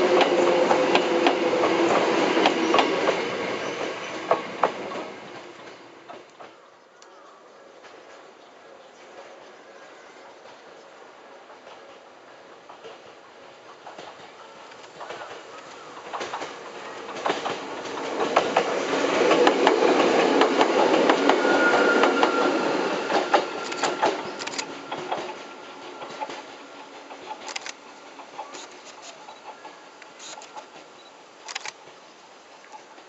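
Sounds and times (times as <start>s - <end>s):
electric train rumble: 0.0s - 6.6s, 9.2s - 33.0s
wheels clattering over rail joints: 12.6s - 22.4s.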